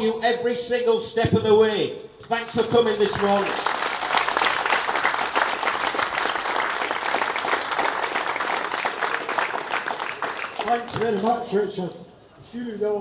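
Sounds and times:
crowd clapping: 2.6 - 11.5.

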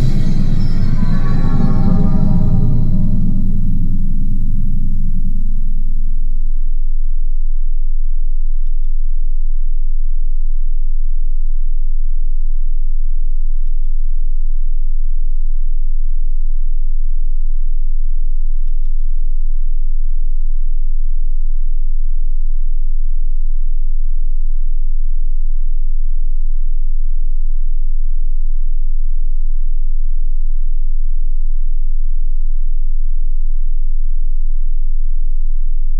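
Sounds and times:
deep synthesized drone: 0.0 - 6.6.

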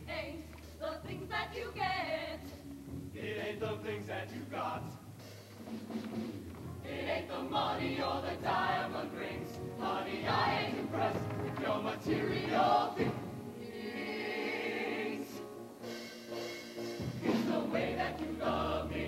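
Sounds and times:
choir singing: 3.2 - 5.0, 6.8 - 15.6, 17.2 - 19.0.

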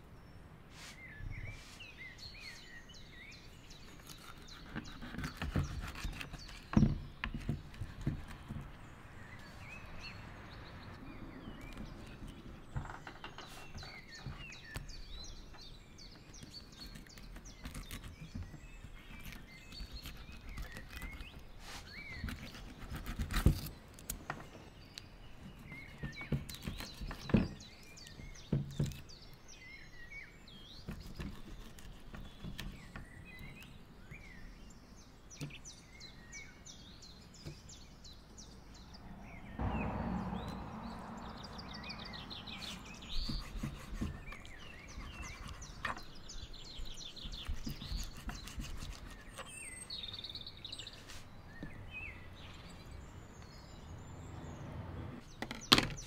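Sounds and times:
birds chirping: 0.0 - 56.0
knife cutting fish on board: 43.2 - 46.0.

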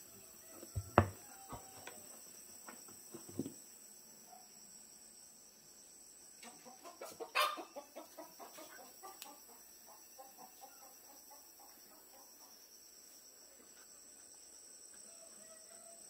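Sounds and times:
chicken clucking: 6.4 - 12.5
chicken squawk: 6.8 - 9.2.

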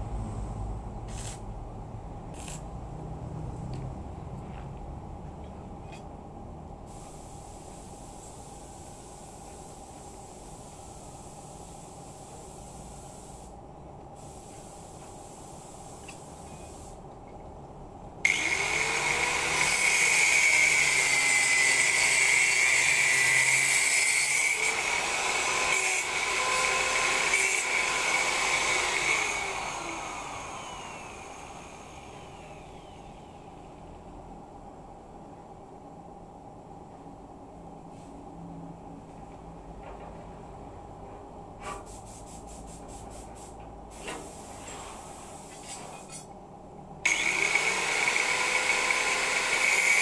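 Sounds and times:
angle grinder cutting steel: 18.3 - 33.4, 47.1 - 50.0.

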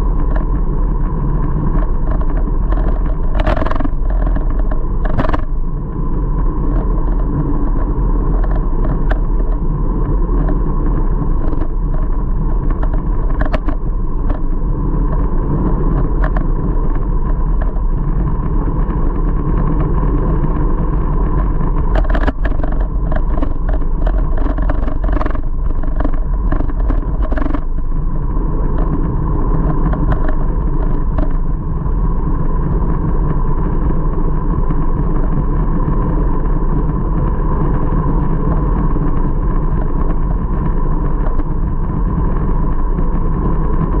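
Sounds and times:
bike road noise: 0.0 - 44.0
wind buffeting microphone: 0.0 - 44.0
sharp ticks: 1.7 - 5.6, 21.7 - 28.0.

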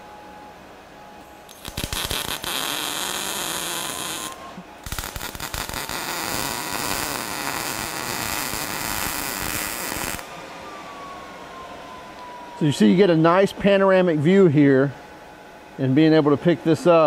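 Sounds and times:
welding arc crackling: 1.5 - 10.3.

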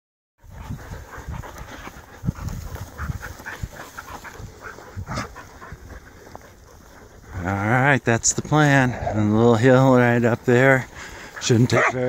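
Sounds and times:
dogs panting: 0.4 - 12.0.

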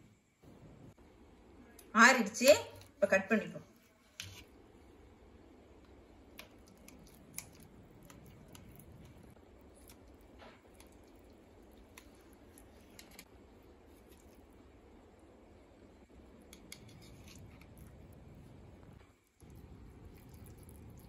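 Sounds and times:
knife cutting and scraping: 6.7 - 14.4, 16.5 - 18.1.

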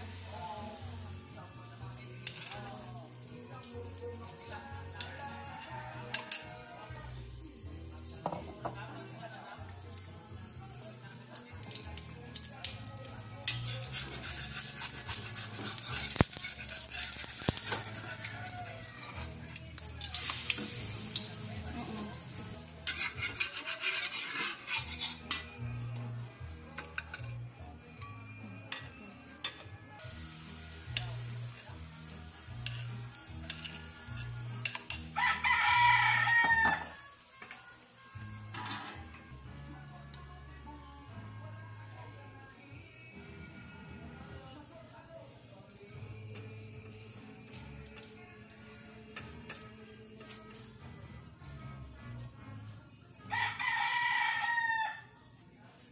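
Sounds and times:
batter sizzling in a wok: 0.0 - 29.3, 29.9 - 41.6, 53.2 - 55.9
spoon scraping metal wok: 13.4 - 19.3, 22.1 - 26.0, 30.9 - 36.8
rooster crowing: 17.7 - 19.3, 35.2 - 37.1, 53.3 - 55.1.

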